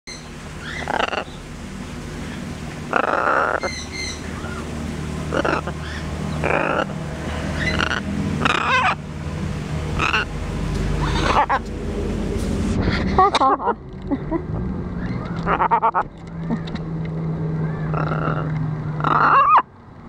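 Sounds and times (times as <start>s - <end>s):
macaw grunting squawks: 5.3s - 6.9s, 7.6s - 9.0s, 11.0s - 11.6s, 17.9s - 19.6s.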